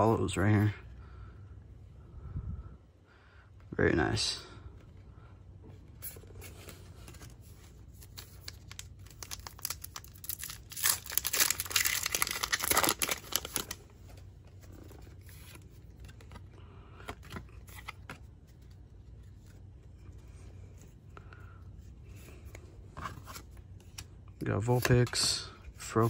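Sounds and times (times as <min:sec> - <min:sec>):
cards rustling: 0:05.8 - 0:26.0
foil pack tearing and crinkling: 0:08.4 - 0:13.8.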